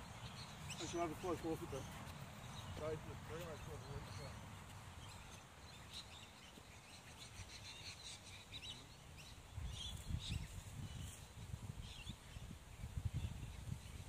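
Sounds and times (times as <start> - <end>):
small birds chirping: 0.0 - 14.0
wind rumble on microphone: 9.2 - 14.0.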